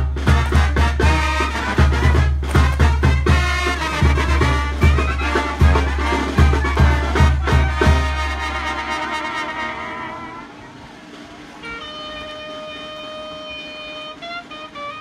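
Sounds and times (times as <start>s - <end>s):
low drum beat: 0.0s - 9.0s
band music melody: 0.0s - 15.0s.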